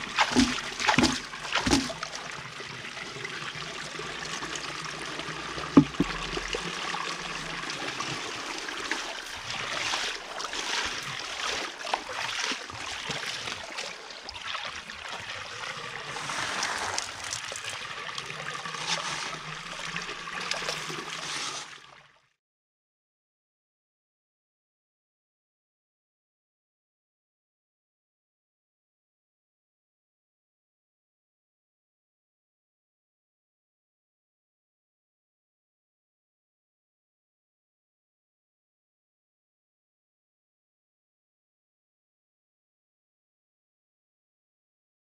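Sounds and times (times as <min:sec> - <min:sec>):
water splashing: 0:00.0 - 0:21.9
water running and swirling: 0:00.0 - 0:22.1.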